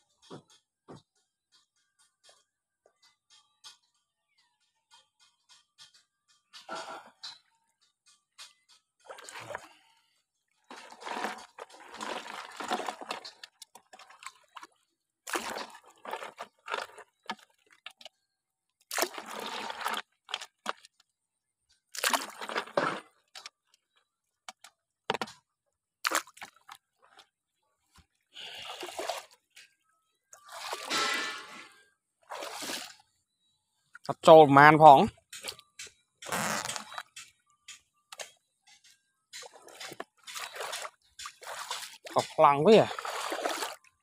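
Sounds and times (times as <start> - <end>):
water splashing and pouring: 9.0 - 9.8, 10.7 - 18.1, 18.9 - 20.8, 22.0 - 23.5, 26.0 - 27.3, 28.4 - 29.4, 30.4 - 33.0, 39.4 - 44.0.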